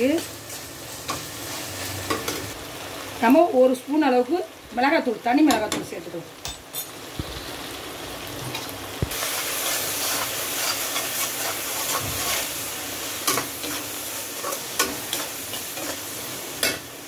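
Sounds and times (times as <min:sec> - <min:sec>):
food sizzling in oil: 0:00.0 - 0:17.0
spatula scraping pan: 0:09.3 - 0:12.5.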